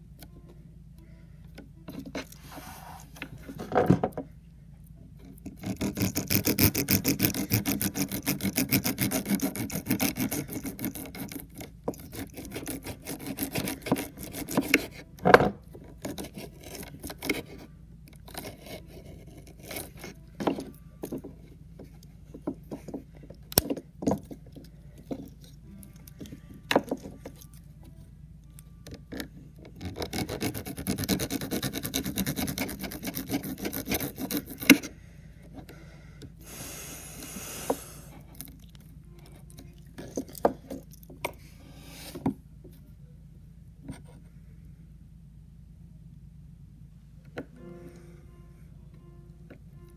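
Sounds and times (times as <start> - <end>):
knife blade rasping on block: 5.5 - 15.0, 16.0 - 17.7, 29.8 - 34.9.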